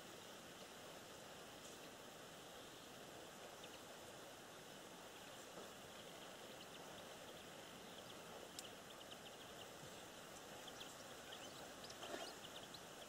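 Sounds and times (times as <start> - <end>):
faint steady hiss: 0.0 - 13.0.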